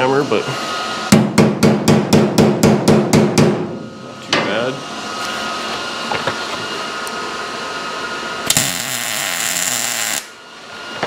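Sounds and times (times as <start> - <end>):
welder hissing: 8.4 - 10.4.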